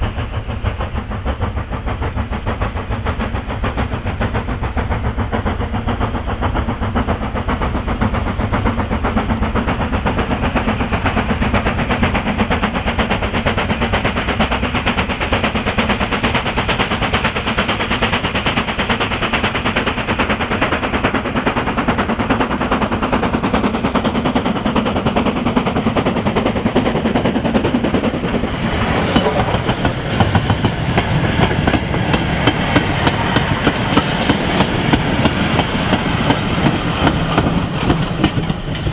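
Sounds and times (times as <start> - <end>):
steam locomotive exhaust beats: 0.0 - 38.9
train wheels clattering over joints: 0.0 - 38.9.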